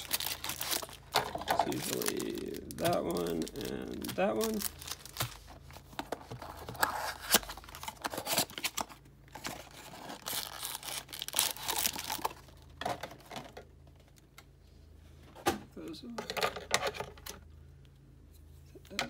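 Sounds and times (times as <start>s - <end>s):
foil wrappers crinkling: 0.0s - 12.7s.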